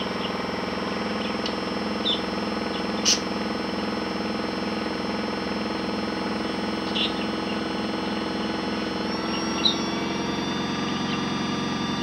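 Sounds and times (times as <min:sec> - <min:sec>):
high whine: 0:00.0 - 0:12.0
toy washing machine motor whirring: 0:00.0 - 0:12.0.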